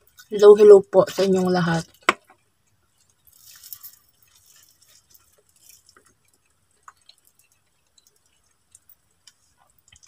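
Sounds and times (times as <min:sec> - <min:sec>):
crispy fried fish crackling: 0:00.0 - 0:10.0.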